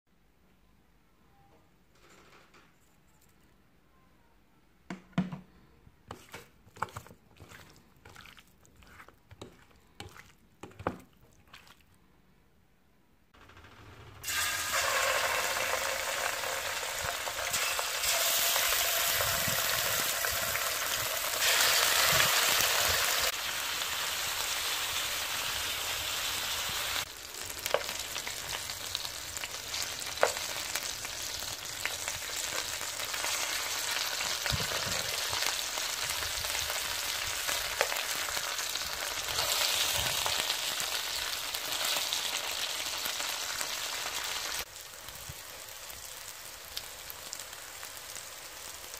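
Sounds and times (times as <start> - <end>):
chicken frying in a pan: 14.2 - 48.9.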